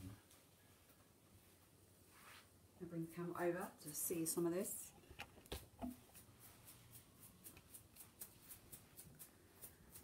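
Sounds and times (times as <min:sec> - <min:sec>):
toothbrush bristles flicking: 0:06.0 - 0:10.0.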